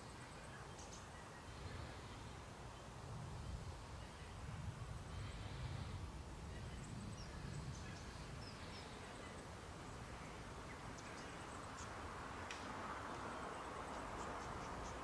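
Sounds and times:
faint bird chirps: 0:00.0 - 0:04.5.

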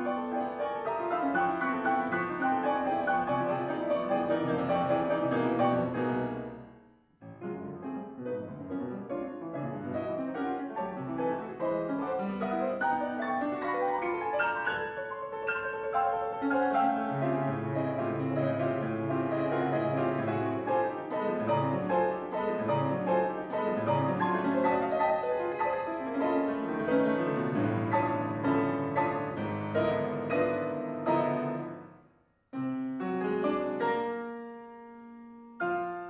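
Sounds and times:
solo grand piano: 0:00.0 - 0:36.0.

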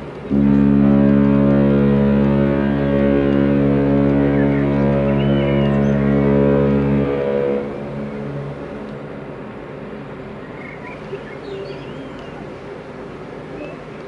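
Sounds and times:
deep ship's horn blast: 0:00.2 - 0:10.2
faint bird chirps: 0:10.6 - 0:12.5, 0:13.5 - 0:13.9.

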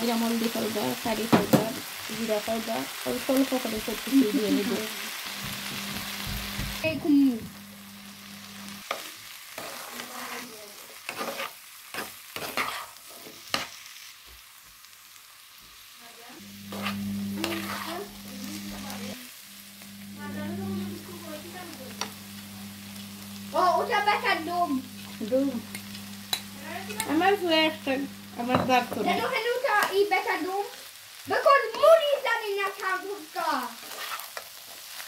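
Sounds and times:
potatoes frying in oil: 0:00.0 - 0:35.0
plastic spatula scraping a pan: 0:08.9 - 0:13.7, 0:16.7 - 0:18.1, 0:33.8 - 0:34.5
steady low hum: 0:16.5 - 0:29.0.

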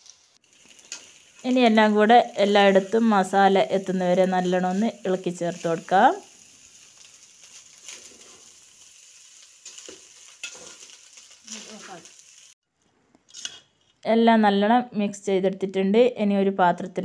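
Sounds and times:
faint sizzle: 0:00.0 - 0:12.6
metal spoon scraping rice in pot: 0:09.7 - 0:11.0, 0:13.3 - 0:13.8.

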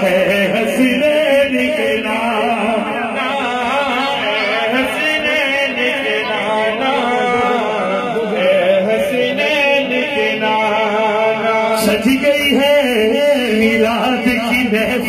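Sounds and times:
person chanting melodically: 0:00.0 - 0:15.0.

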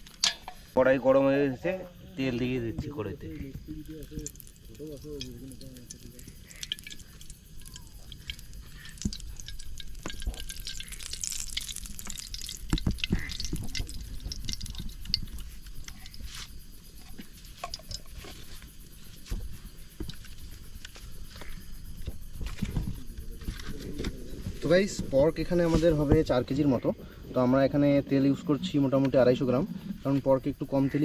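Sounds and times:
oil pouring and dripping: 0:02.7 - 0:26.6
light crackles in hot oil: 0:03.3 - 0:26.4.

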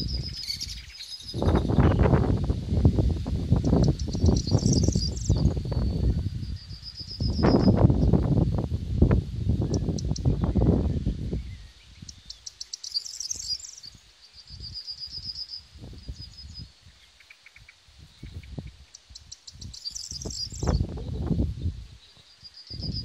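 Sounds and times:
wind noise on microphone: 0:00.0 - 0:12.5, 0:13.2 - 0:17.0, 0:17.9 - 0:23.0
songbird singing trill: 0:00.0 - 0:23.0.

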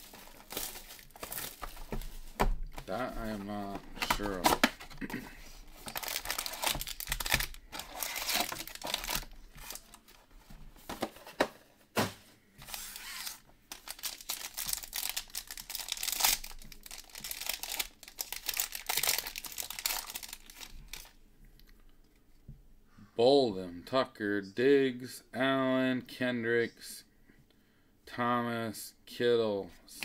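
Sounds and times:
wrapper tearing and crinkling: 0:00.0 - 0:01.8, 0:05.8 - 0:10.0, 0:12.7 - 0:21.2.

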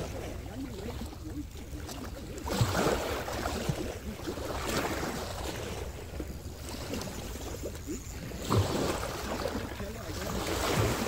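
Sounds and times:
waves lapping over rocks: 0:00.0 - 0:11.0
wind rumble on microphone: 0:00.0 - 0:11.0.

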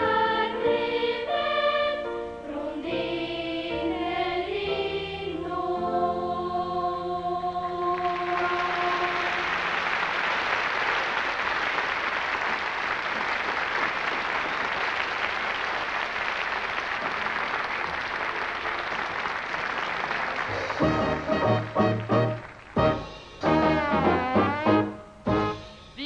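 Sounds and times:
children's choir held chord: 0:00.0 - 0:10.4
audience applauding: 0:07.9 - 0:24.9.

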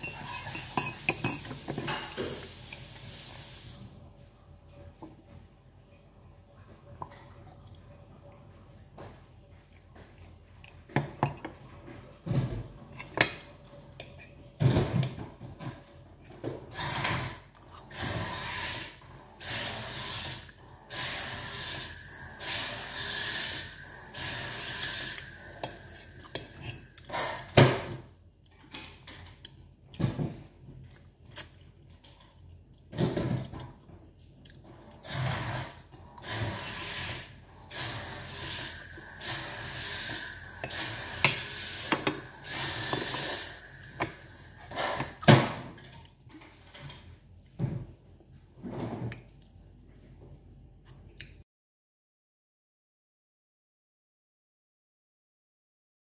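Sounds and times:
metal spoon clinking on plate: 0:00.0 - 0:02.2.

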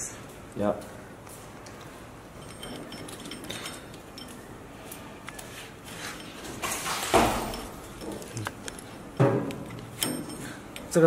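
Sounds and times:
chain clicking and sliding: 0:02.2 - 0:05.1, 0:05.8 - 0:11.0.

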